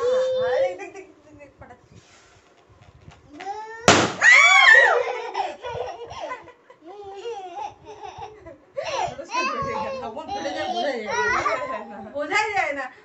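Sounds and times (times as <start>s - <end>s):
balloon popping: 3.9s - 4.3s
shrieks and laughter: 4.2s - 6.5s.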